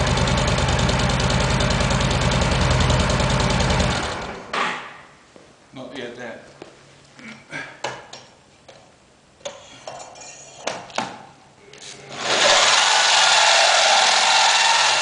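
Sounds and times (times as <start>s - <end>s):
electric drill grinding metal: 12.1s - 15.0s.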